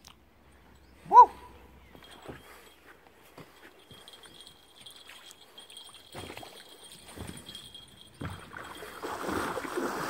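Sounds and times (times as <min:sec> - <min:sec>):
fish thrashing water splashing: 0:07.6 - 0:10.0.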